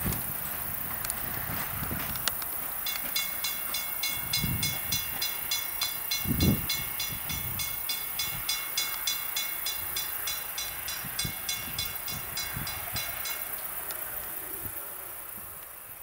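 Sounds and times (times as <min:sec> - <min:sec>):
train thuds: 0:00.0 - 0:13.6
passing train rumble: 0:00.0 - 0:16.0
crossing bell ringing: 0:02.7 - 0:14.3.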